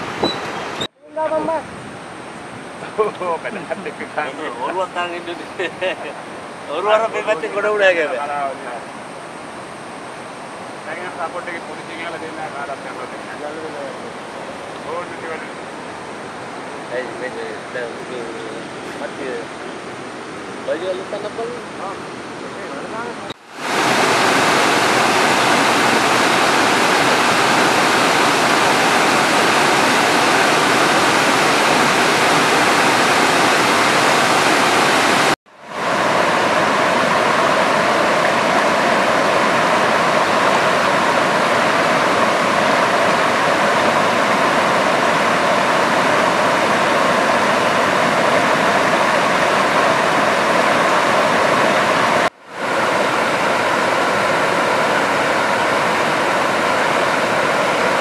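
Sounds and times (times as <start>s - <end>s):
water rushing over spillway: 0.0s - 58.0s.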